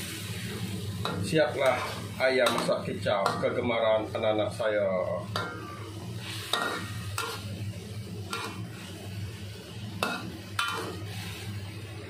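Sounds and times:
steady low hum: 0.0 - 12.0
metal ladle clanking against a wok: 6.5 - 7.5, 10.0 - 10.9.

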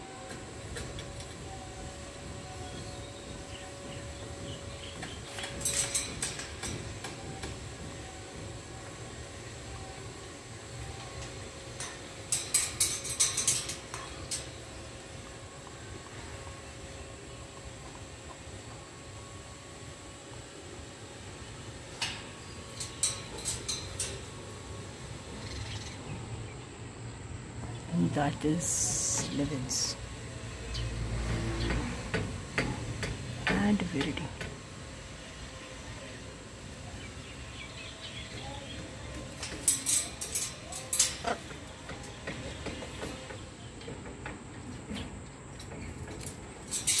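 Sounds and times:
parrot claws clicking on wire mesh: 11.8 - 14.5, 39.4 - 41.4
beak and claws tapping cage bars: 39.3 - 43.3.

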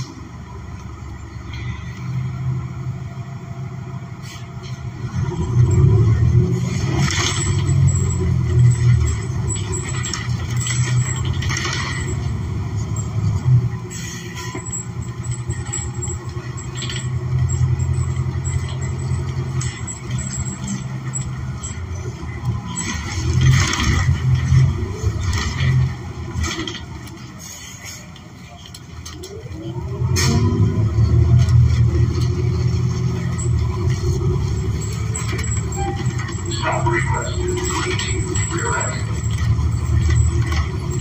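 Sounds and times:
bus engine drone: 0.0 - 41.0
body rattles and clicks: 6.9 - 12.5, 14.6 - 27.3, 31.2 - 41.0.

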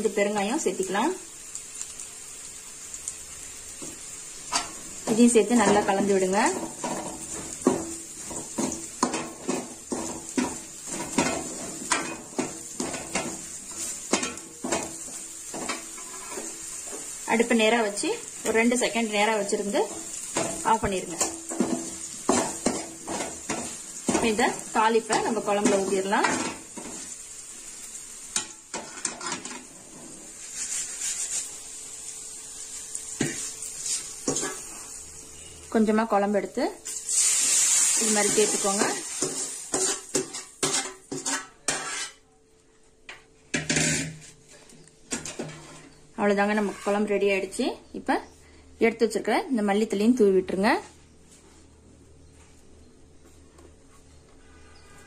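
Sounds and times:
frying sizzle: 0.0 - 52.4
metal spoon scraping a pan: 5.6 - 17.8, 19.4 - 27.2, 28.3 - 31.6, 33.2 - 35.5, 36.9 - 42.3, 43.6 - 44.4, 45.1 - 47.2
metal ladle scraping a metal pan: 15.5 - 17.0, 37.1 - 42.2, 45.2 - 47.1.

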